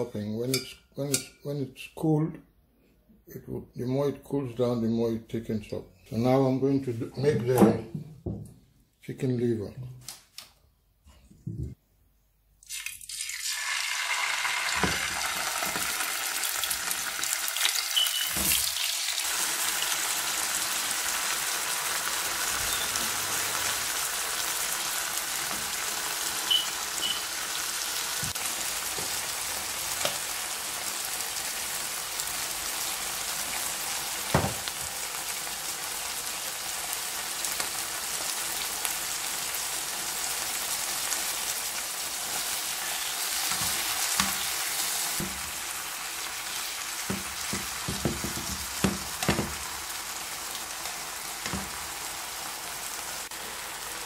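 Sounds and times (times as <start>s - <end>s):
liver sizzling in frying pan: 12.7s - 54.0s.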